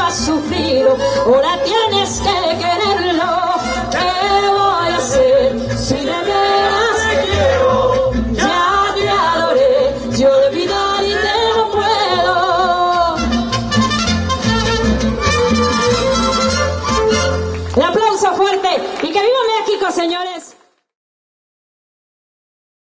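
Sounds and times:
woman singing: 0:00.0 - 0:13.3
mariachi band playing: 0:00.0 - 0:19.7.

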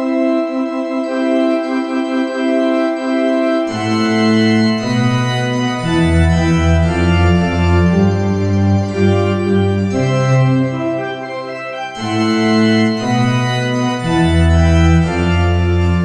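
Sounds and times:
deep organ bass notes: 0:00.0 - 0:16.0
organ playing held chords: 0:00.0 - 0:16.0.

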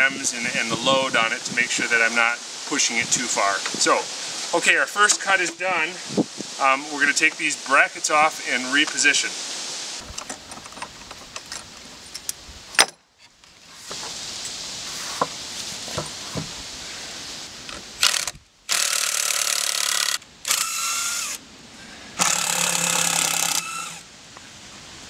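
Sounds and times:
cordless drill driving screws: 0:18.0 - 0:21.4, 0:22.2 - 0:24.0.

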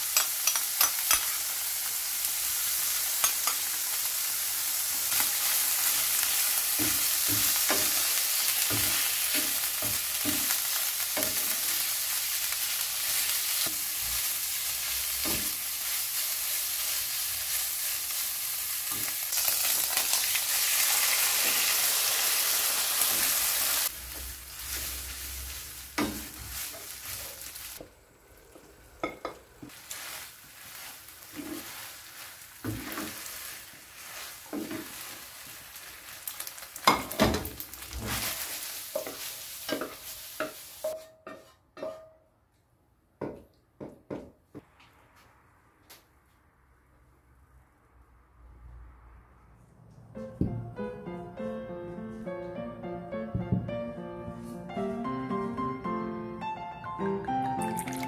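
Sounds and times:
food sizzling in a pan: 0:00.0 - 0:41.1, 0:57.4 - 0:58.0.

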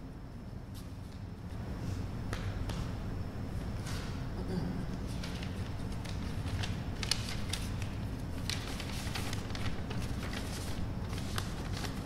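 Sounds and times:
paper rustling and clicking: 0:05.1 - 0:12.0.

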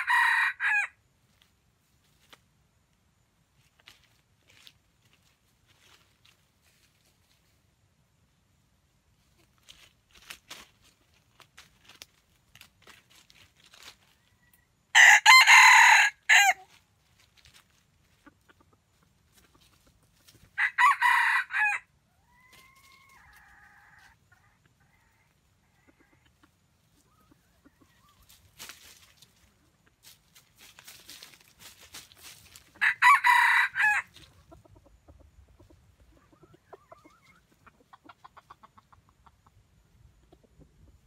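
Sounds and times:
rooster crowing: 0:00.0 - 0:01.0, 0:14.9 - 0:16.6, 0:20.6 - 0:24.2, 0:32.8 - 0:34.1
rustling in dry leaves: 0:03.5 - 0:07.7, 0:09.1 - 0:20.8, 0:22.2 - 0:24.2, 0:26.8 - 0:34.6.

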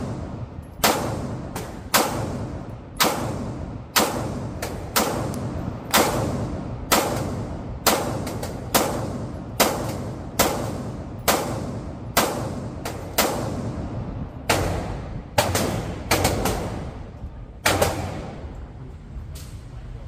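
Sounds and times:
pistol shots echoing: 0:00.0 - 0:17.0, 0:17.6 - 0:18.5.

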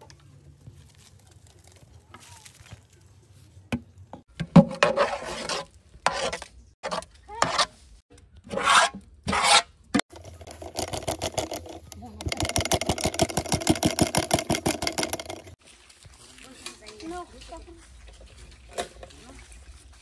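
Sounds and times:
utensil scraping in a cooking pot: 0:04.7 - 0:07.9, 0:08.5 - 0:15.6.

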